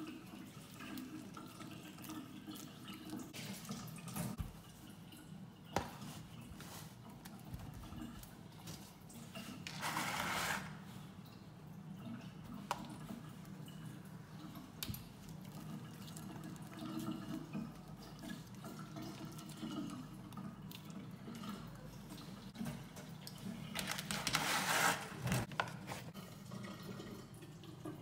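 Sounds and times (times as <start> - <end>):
soft wet handling sounds: 0.0 - 28.0.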